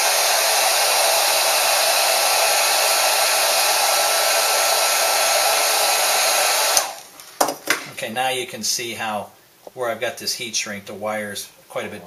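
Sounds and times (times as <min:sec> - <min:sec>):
heat gun blowing air: 0:00.0 - 0:07.1.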